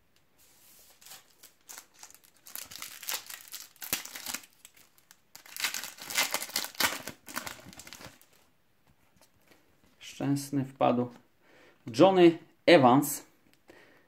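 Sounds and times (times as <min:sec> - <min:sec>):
foil card pack crinkling: 0:00.9 - 0:08.4
foil pack tearing open: 0:01.0 - 0:08.3.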